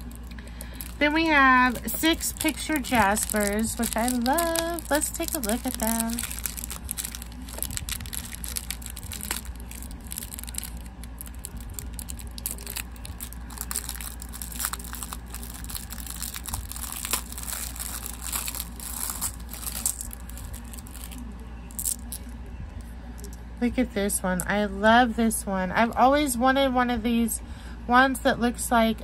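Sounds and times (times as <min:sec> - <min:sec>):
packaging crinkling: 0:00.0 - 0:22.3
steady low hum: 0:00.0 - 0:29.0.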